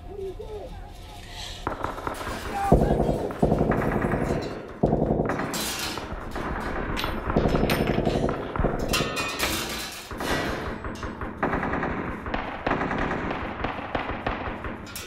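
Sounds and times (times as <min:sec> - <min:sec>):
automatic gunfire bursts: 0:01.6 - 0:09.1.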